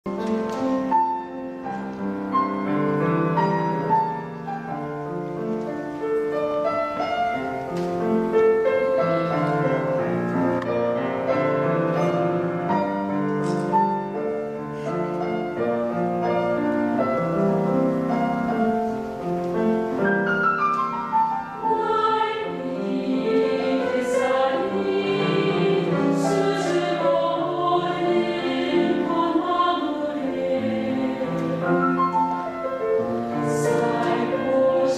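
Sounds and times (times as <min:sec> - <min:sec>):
piano accompaniment: 0:00.0 - 0:34.9
mixed choir singing: 0:21.6 - 0:32.2, 0:33.0 - 0:34.9.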